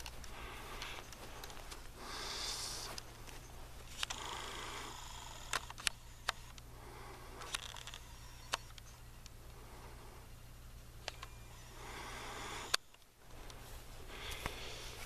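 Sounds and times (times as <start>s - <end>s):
sharp clicks: 0.0s - 9.4s, 11.0s - 11.6s, 12.4s - 13.6s
low steady hum: 0.0s - 15.0s.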